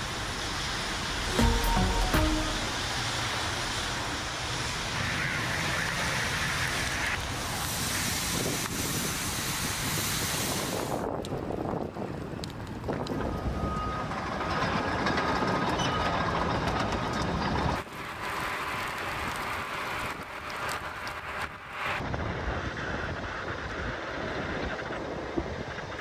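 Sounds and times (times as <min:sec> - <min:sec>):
wind: 0:00.0 - 0:26.0
fire crackling pops: 0:17.8 - 0:22.0.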